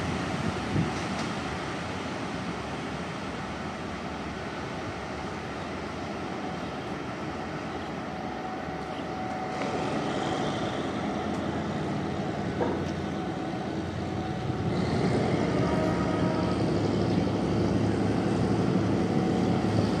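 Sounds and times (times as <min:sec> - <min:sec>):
traffic hiss: 0:00.0 - 0:20.0
vehicle engine rumble: 0:08.8 - 0:20.0.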